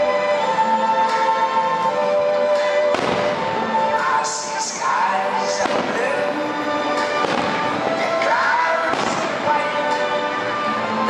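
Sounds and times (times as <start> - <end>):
loud music with sustained tones: 0.0 - 11.0
firework shells bursting: 7.0 - 8.0.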